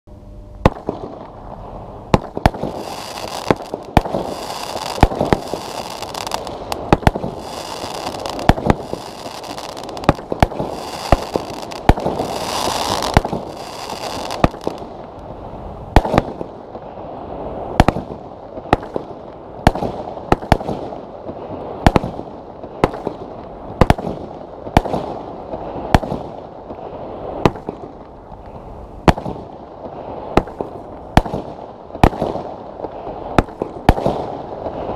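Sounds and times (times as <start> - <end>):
steady hiss: 0.1 - 18.7
firework bangs: 0.6 - 15.1, 15.9 - 34.9.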